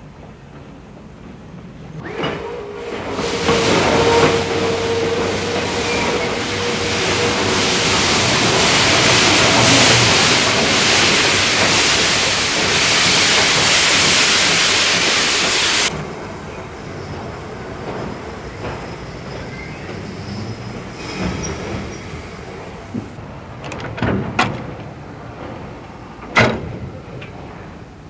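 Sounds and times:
steam hissing from locomotive: 1.8 - 23.5.

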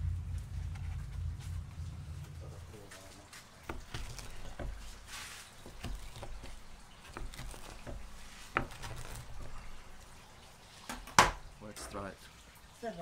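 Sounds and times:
knife knocking on wooden board: 3.6 - 5.0, 5.6 - 9.9
knife crunching through pizza: 3.6 - 10.0.

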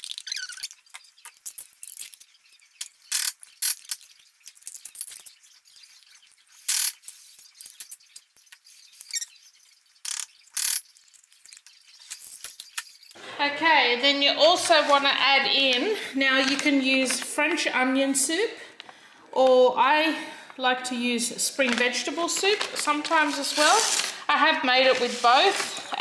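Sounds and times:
spoon scraping plastic tub: 14.0 - 17.3, 21.6 - 26.0.

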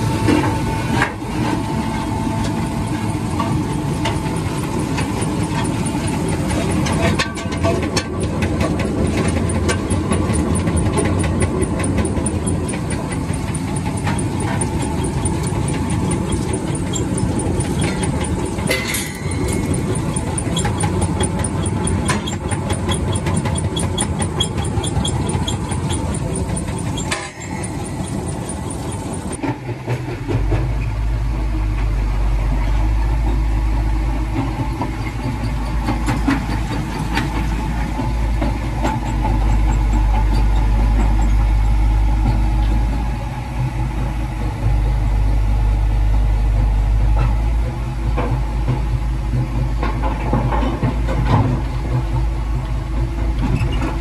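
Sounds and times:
low engine drone in cab: 0.0 - 29.4
crusher machine running: 0.0 - 30.5.

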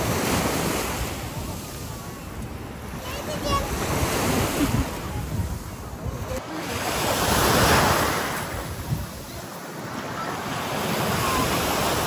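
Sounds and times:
wind buffeting microphone: 0.0 - 9.5
waves washing onto beach: 0.0 - 12.0.

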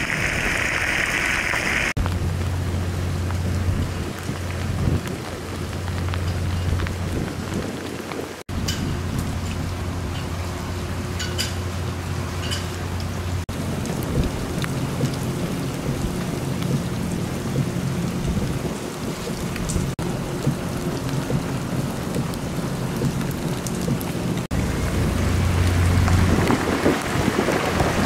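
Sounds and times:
heavy rain on pavement: 0.0 - 28.0
low rumble: 13.1 - 28.0.

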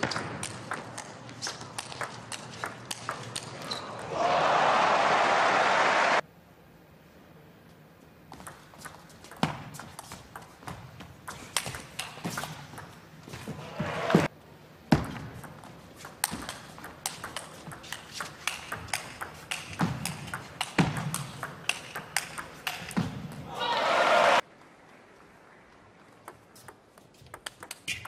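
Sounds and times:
table tennis ball clicking: 15.4 - 23.0, 26.2 - 28.0.

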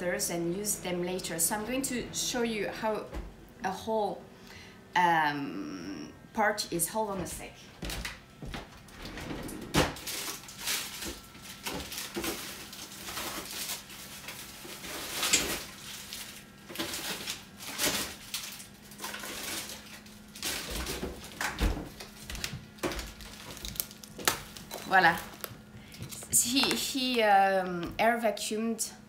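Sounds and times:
faint steady hum: 0.0 - 29.0
kitchen items being handled: 9.9 - 28.2
plastic packaging rustling: 10.0 - 27.4.

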